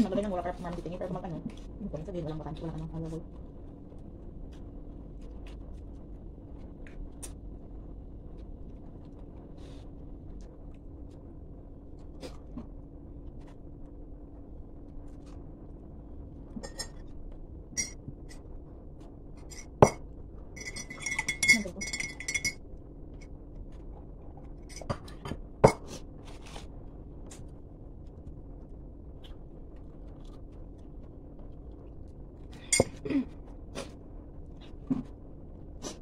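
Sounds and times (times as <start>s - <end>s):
steady low hum: 0.0s - 36.0s
ceramic tableware clinking: 16.6s - 17.0s, 17.8s - 18.0s, 19.5s - 20.0s, 20.6s - 22.6s.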